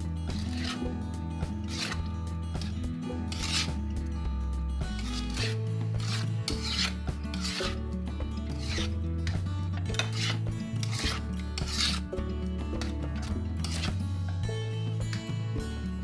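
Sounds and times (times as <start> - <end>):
metal spoon scraping a bowl: 0.0 - 4.0, 4.8 - 12.2, 12.8 - 14.0
background music with low notes: 0.0 - 16.0.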